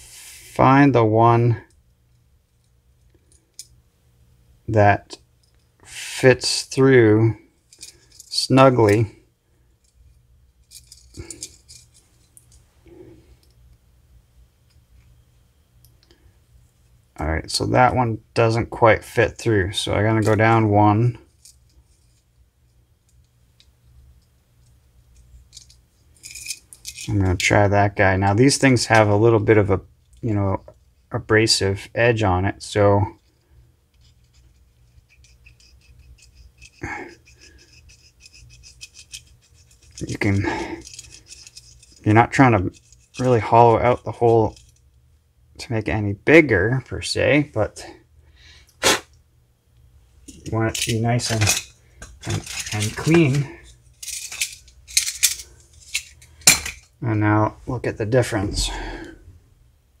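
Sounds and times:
low steady hum: 0:00.0 - 1:00.0
metallic clicks and clinks: 0:25.1 - 0:27.2, 0:40.8 - 0:42.1, 0:50.3 - 0:56.9.

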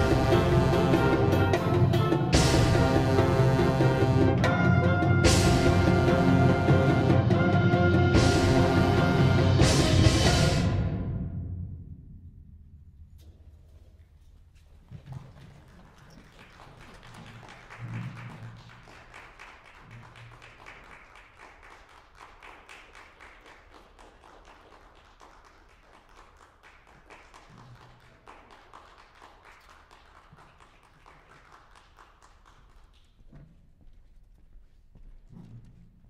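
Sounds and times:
audience applauding: 0:15.0 - 0:33.2.

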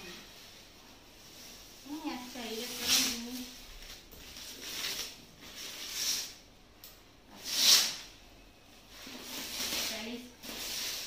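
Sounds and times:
plastic wrap crinkling: 0:00.0 - 0:06.4, 0:08.9 - 0:11.0.

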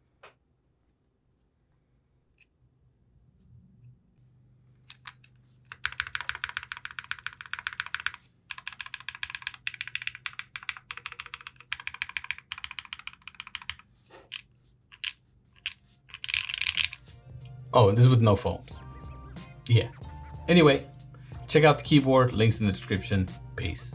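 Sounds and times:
fast typing on mechanical keyboard: 0:04.9 - 0:17.0.

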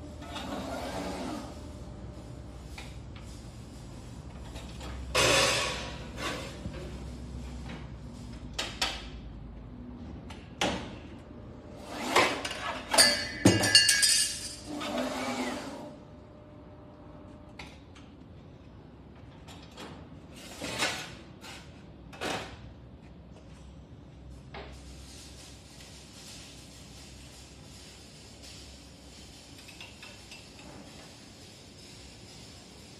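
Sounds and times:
clattering with ringing metal clinks: 0:12.9 - 0:14.7.

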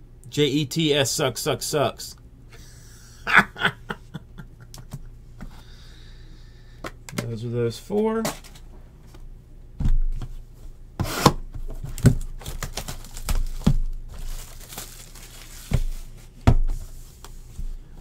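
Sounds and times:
plastic shrink-wrap crinkling and tearing: 0:11.9 - 0:16.2.

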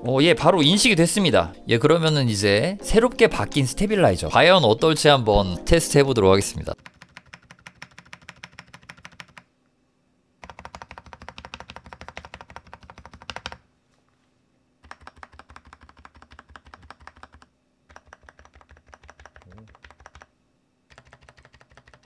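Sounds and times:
mechanical keyboard keys pressed: 0:06.8 - 0:09.5, 0:10.4 - 0:13.6, 0:14.8 - 0:20.3, 0:20.9 - 0:22.0.

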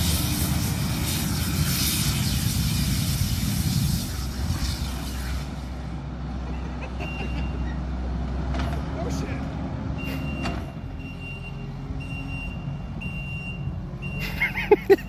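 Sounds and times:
loud rushing noise: 0:00.0 - 0:06.2
diesel engine running: 0:00.0 - 0:15.0.

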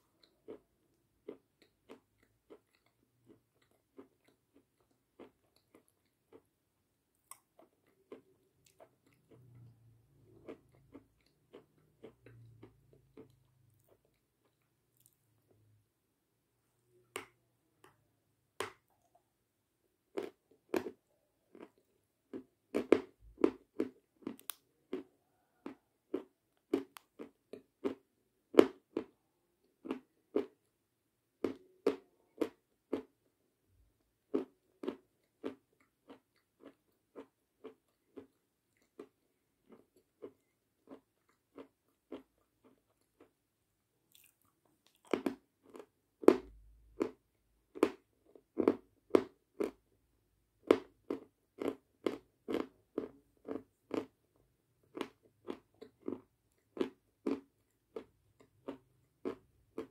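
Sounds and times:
chalk being bitten and chewed: 0:00.1 - 0:06.5, 0:34.3 - 0:43.3, 0:50.7 - 0:54.2, 0:54.9 - 0:59.9.

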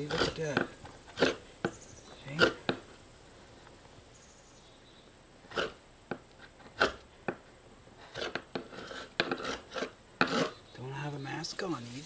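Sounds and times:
chisel scraping epoxy: 0:08.1 - 0:10.6.

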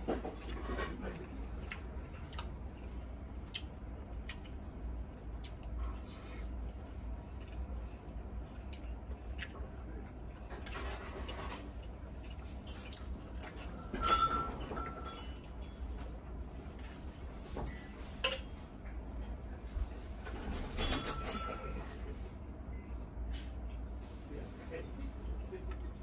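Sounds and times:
low steady hum: 0:00.0 - 0:26.0
sharp ringing clink: 0:14.0 - 0:15.3.

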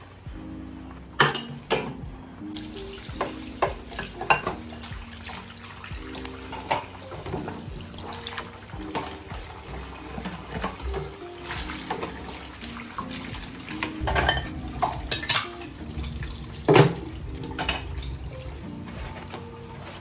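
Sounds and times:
dishes clinking: 0:01.2 - 0:02.0, 0:03.2 - 0:04.8, 0:06.5 - 0:07.7, 0:13.8 - 0:15.8, 0:16.7 - 0:18.1
tap running into sink: 0:02.7 - 0:05.4, 0:06.1 - 0:12.4, 0:13.0 - 0:20.0.

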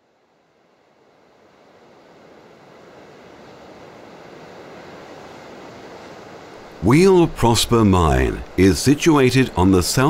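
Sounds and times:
sea surf: 0:00.0 - 0:10.0
wind: 0:00.0 - 0:10.0.

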